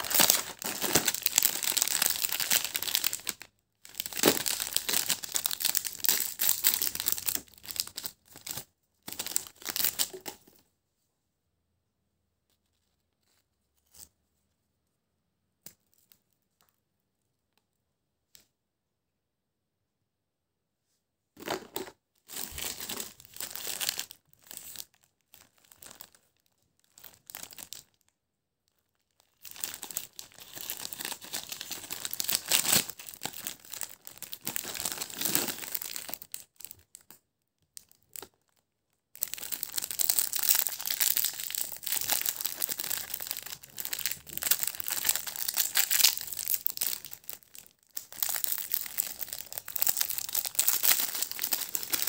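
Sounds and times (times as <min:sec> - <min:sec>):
plastic wrapper crinkling: 0:00.0 - 0:10.6, 0:21.4 - 0:28.1, 0:28.7 - 0:37.2, 0:37.8 - 0:52.0.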